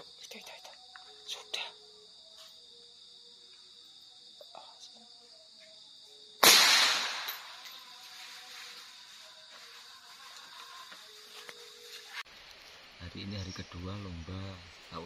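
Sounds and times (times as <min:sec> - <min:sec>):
night insects chirping: 0:00.0 - 0:15.0
rifle shot: 0:06.4 - 0:07.6.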